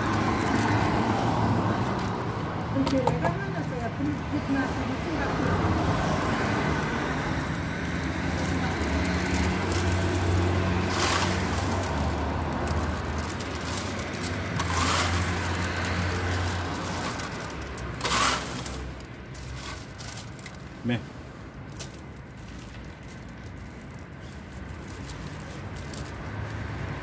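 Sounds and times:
popcorn rustling in plastic bag: 0.0 - 2.5, 3.1 - 27.0.

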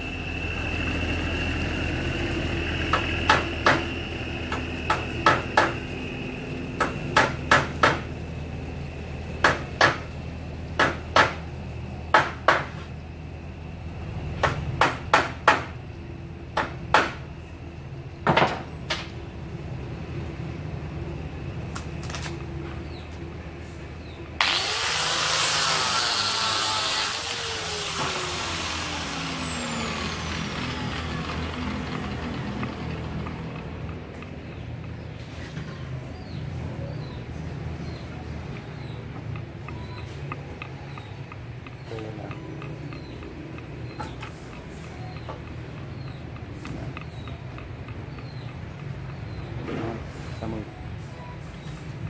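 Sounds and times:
angle grinder running: 24.4 - 35.1.

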